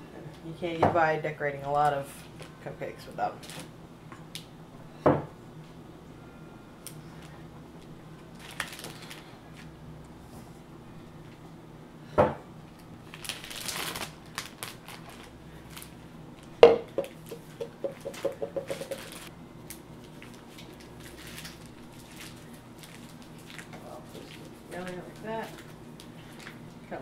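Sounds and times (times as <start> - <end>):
plastic bag rustling: 8.3 - 9.3, 13.0 - 16.0, 17.0 - 19.3, 20.0 - 26.6
utensil knocking on steel bowl: 16.6 - 19.1.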